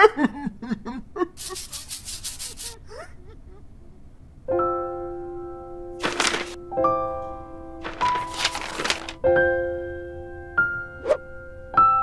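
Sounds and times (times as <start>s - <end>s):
scratchy rubbing strokes: 1.4s - 2.8s.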